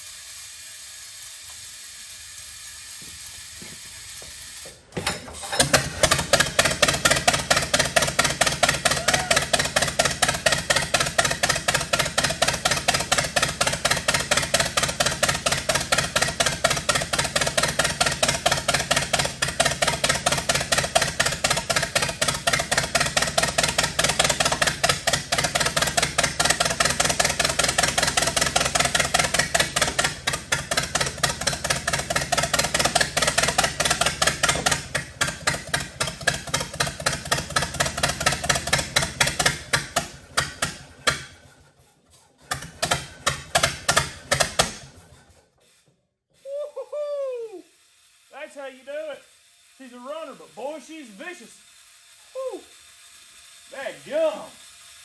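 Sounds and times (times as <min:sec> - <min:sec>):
tractor engine running: 0:01.3 - 0:41.8, 0:42.4 - 0:45.3.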